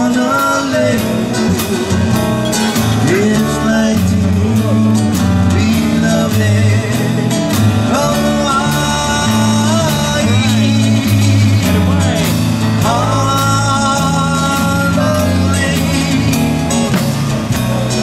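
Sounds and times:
live band playing slow song: 0.0s - 18.0s.

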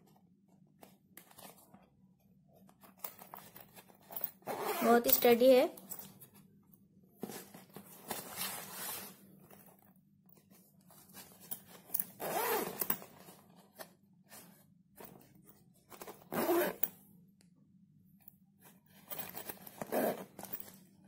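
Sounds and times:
zip on plastic pouch: 4.4s - 5.0s, 12.2s - 12.9s, 16.2s - 16.9s, 19.6s - 20.4s.

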